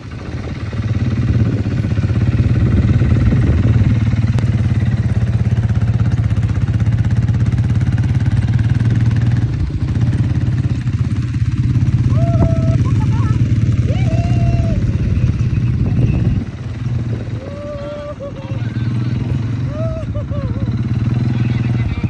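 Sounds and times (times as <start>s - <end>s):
quad bike engine running: 0.0s - 22.0s.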